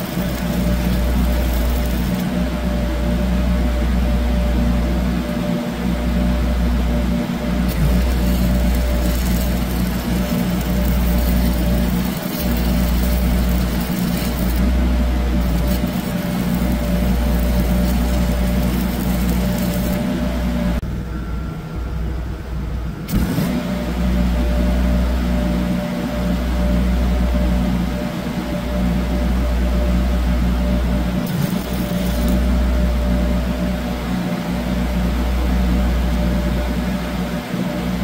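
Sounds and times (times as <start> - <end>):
welding arc crackling: 0.0 - 3.4, 7.4 - 20.8, 31.2 - 33.1
engine hum: 0.0 - 38.0.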